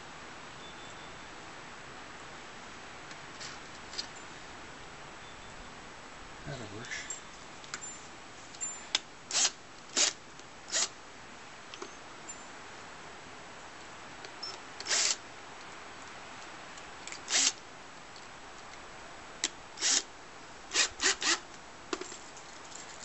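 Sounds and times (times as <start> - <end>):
drill chuck ratcheting: 9.3 - 10.9, 14.8 - 15.2, 17.3 - 17.6, 19.8 - 20.1, 20.7 - 21.4.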